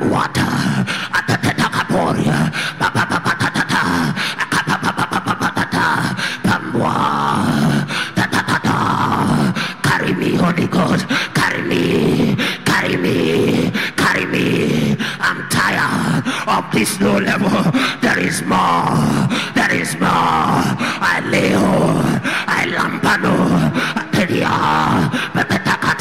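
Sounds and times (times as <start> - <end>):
man praying aloud: 0.0 - 26.0.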